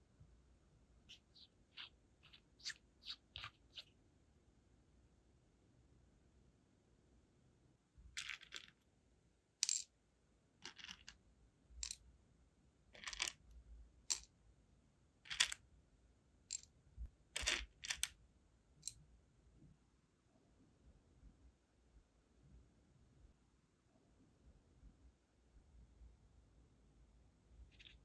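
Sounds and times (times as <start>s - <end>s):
wax beads clicking and rattling: 17.4s - 18.1s.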